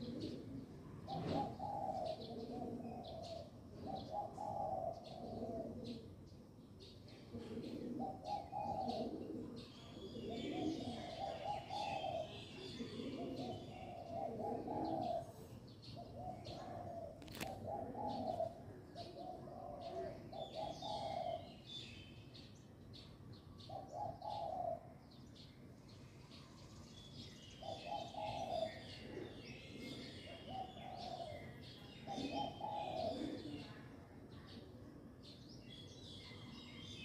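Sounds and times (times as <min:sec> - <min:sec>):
dove cooing: 0:00.0 - 0:06.3, 0:07.1 - 0:21.8, 0:23.6 - 0:25.0, 0:27.6 - 0:34.0
small birds chirping: 0:00.0 - 0:37.0.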